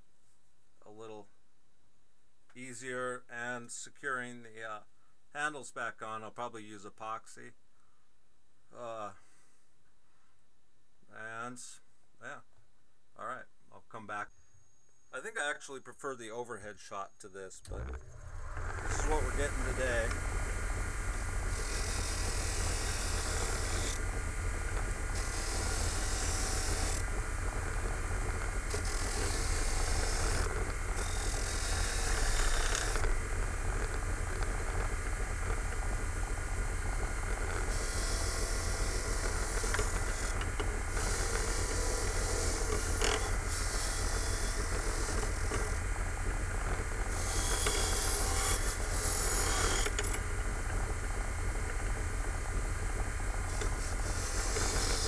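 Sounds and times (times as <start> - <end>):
blade scraping on grinding wheel: 17.7 - 45.9, 46.6 - 50.9, 53.4 - 55.0
bench grinder motor hum: 17.7 - 55.0.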